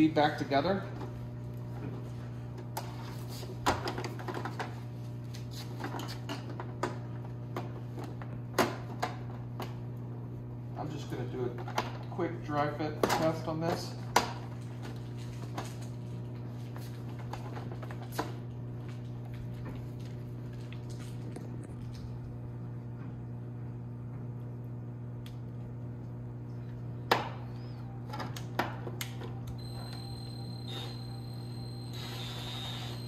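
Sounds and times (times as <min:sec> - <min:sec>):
steady low hum: 0:00.0 - 0:33.0
drill motor whine: 0:29.6 - 0:33.0.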